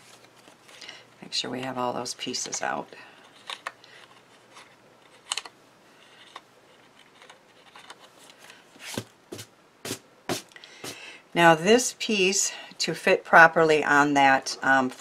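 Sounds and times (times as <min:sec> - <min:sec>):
paper rustling: 0:06.1 - 0:10.0.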